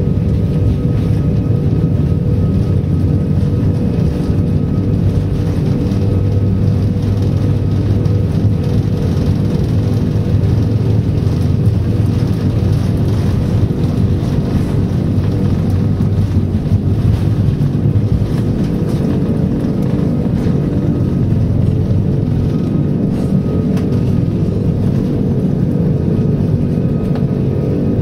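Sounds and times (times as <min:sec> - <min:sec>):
jet engines rumbling in cabin: 0:00.0 - 0:28.0.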